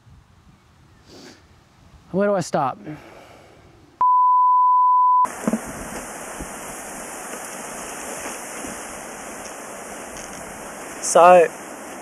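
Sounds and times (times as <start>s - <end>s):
microphone handling bumps: 5.3s - 9.5s
microphone hiss: 5.3s - 12.0s.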